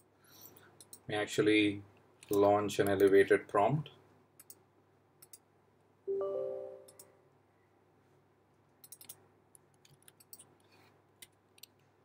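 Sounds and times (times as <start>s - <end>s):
bell-like system chime: 6.1s - 7.0s.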